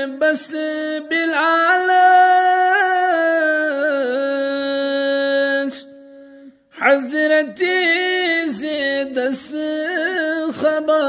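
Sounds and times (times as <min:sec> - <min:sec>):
man singing unaccompanied: 0:00.0 - 0:06.0, 0:06.8 - 0:11.0.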